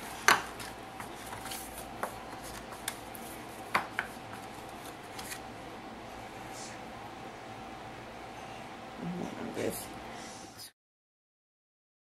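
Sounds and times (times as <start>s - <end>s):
paper rustling: 0.0s - 5.4s
faint steady hum: 0.0s - 10.7s.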